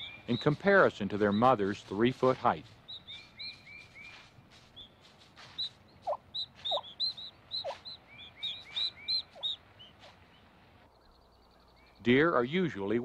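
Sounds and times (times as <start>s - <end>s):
turkey poults peeping: 0.0s - 12.3s
turkey hen calls: 2.6s - 11.8s.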